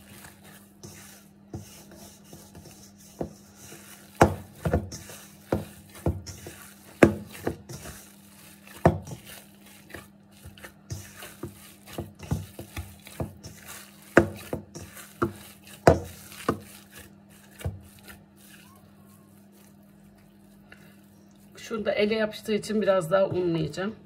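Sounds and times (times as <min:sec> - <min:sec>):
dough thudding in steel bowl: 0:04.1 - 0:08.0, 0:08.7 - 0:18.2.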